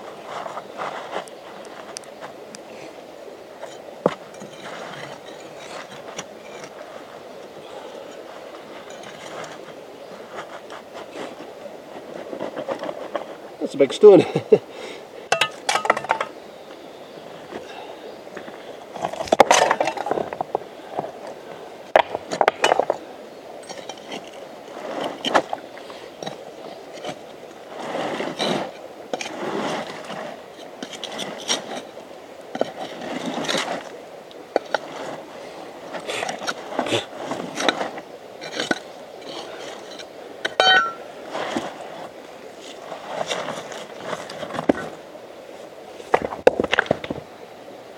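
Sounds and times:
stones scraping and clinking: 3.6s - 7.1s, 8.0s - 11.5s, 15.3s - 16.4s, 19.0s - 21.1s, 22.0s - 23.0s, 23.6s - 34.0s, 35.9s - 42.1s
stone knocking on stone: 40.5s - 41.0s.

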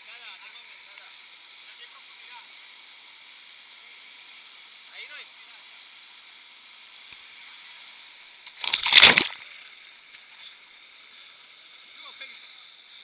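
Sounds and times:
water splashing at camera: 8.5s - 9.5s.

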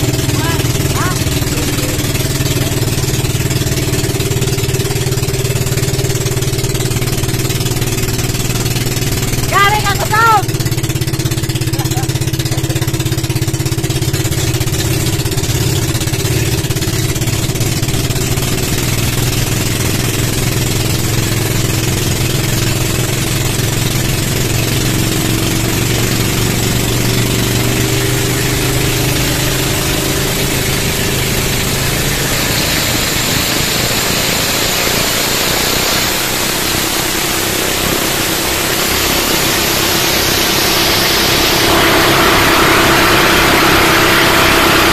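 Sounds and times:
boat engines droning: 0.0s - 44.9s
water rushing: 0.0s - 44.9s.

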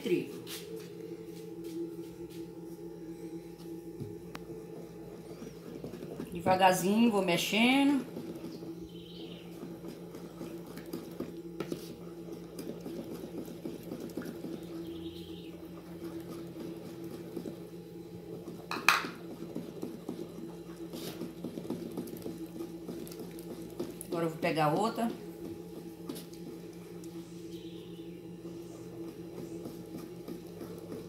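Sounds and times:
steady low hum: 0.0s - 31.0s
spatula stirring batter in bowl: 9.4s - 15.4s, 18.9s - 24.3s
spatula knocking on bowl: 18.7s - 19.2s.

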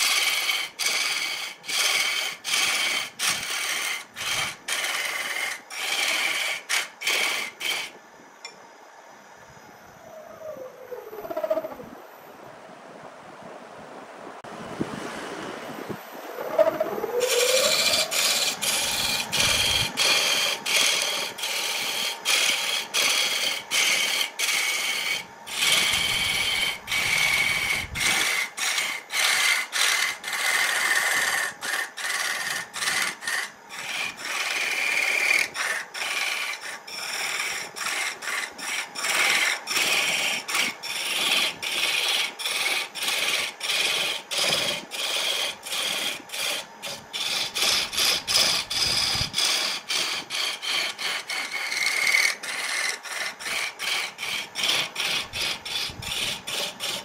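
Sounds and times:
turning tool scraping wood: 0.0s - 8.0s, 16.4s - 57.0s
lathe motor rising hum: 15.1s - 29.0s.

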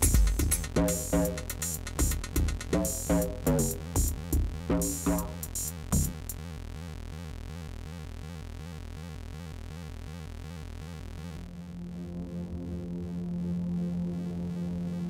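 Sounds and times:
drum machine hit: 0.0s - 6.4s
pulsing synth line: 6.4s - 15.0s
low synth drone: 11.2s - 15.0s
held low synth note: 11.4s - 15.0s.

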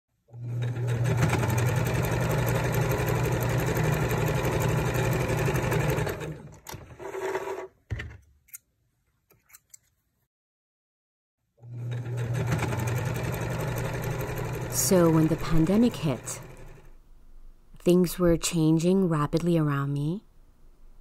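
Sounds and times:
sewing machine stitching: 0.3s - 7.7s, 11.6s - 17.0s.

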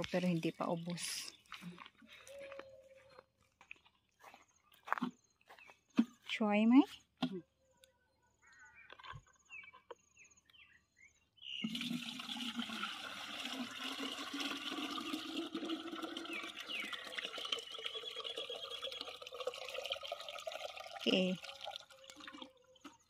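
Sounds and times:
water pouring into watering can: 11.6s - 23.0s.

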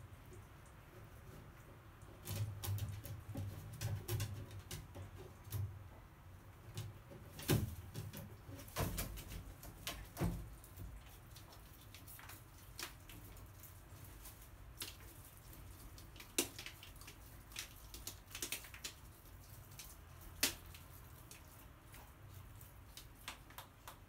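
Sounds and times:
bird pecking: 6.6s - 24.0s
bird rustling: 6.6s - 24.0s.

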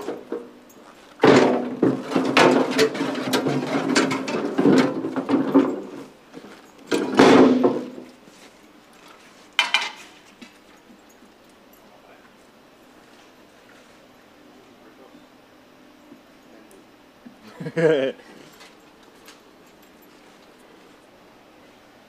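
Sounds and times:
hand truck clattering and scraping: 0.0s - 11.0s
heavy metal clunk: 1.2s - 6.2s, 6.9s - 8.1s.

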